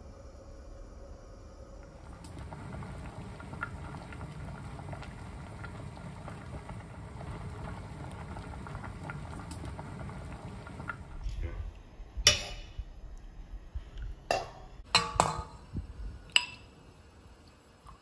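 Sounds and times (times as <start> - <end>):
water boiling in a pot: 1.8 - 11.4, 14.9 - 18.0.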